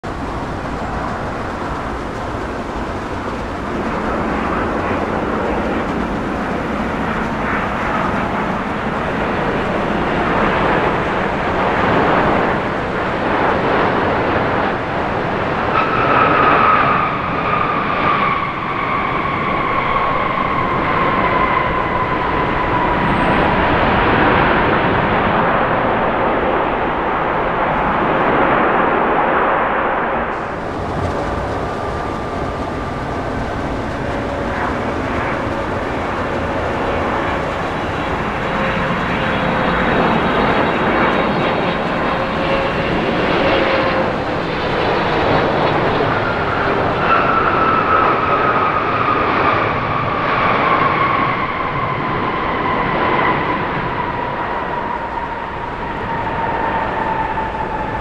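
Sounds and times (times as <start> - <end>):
whining engine tone: 0.0 - 25.0, 30.3 - 50.0
jet engines rushing: 0.0 - 58.0.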